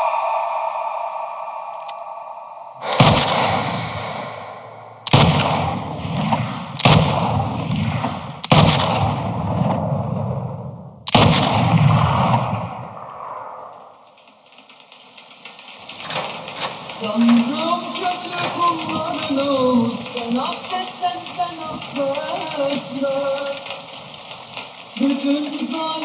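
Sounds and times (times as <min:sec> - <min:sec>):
echoing gunshots: 0:02.8 - 0:14.5.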